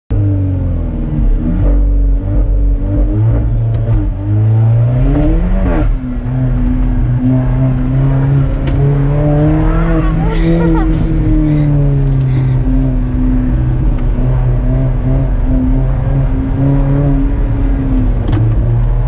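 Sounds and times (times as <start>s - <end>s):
car engine accelerating hard: 0.1s - 19.0s.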